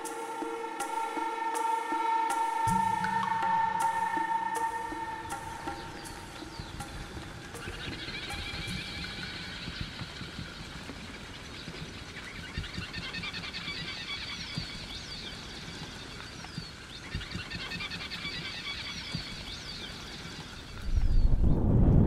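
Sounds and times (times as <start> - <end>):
high whistled bird calls: 0.0 - 10.6
birds chirping and trilling: 0.0 - 21.7
wind gust hitting microphone: 20.7 - 22.0.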